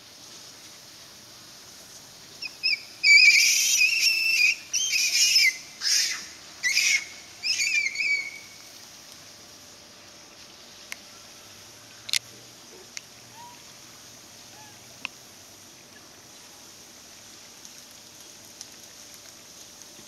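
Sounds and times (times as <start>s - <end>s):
shrill whistle-like animal calls: 2.4s - 8.6s, 13.3s - 13.6s, 14.5s - 14.9s.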